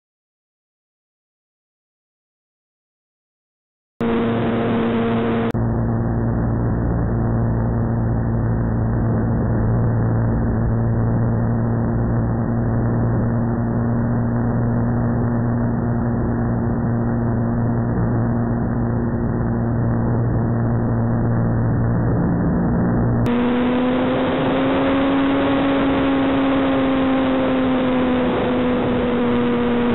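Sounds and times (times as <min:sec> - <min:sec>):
electric motor and propeller drone: 0:04.0 - 0:14.9, 0:18.0 - 0:29.9.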